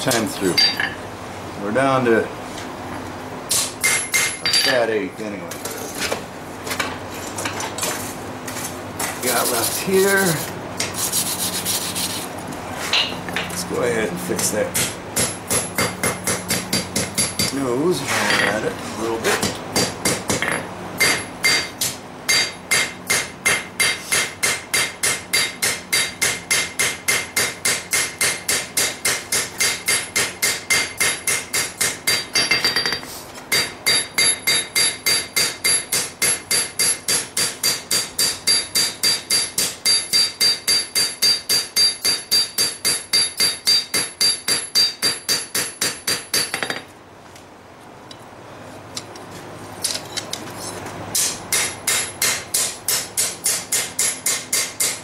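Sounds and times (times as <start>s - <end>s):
hammer ringing on hot metal: 3.8s - 4.8s, 14.8s - 17.6s, 19.8s - 46.8s.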